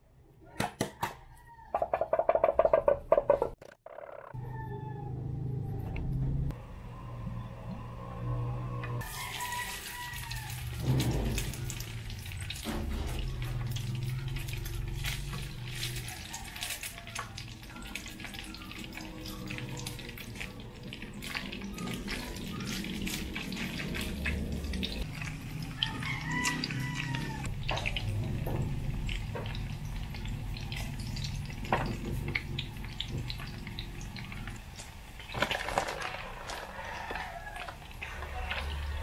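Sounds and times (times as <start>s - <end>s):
meat sizzling in hot oil: 9.0s - 35.3s.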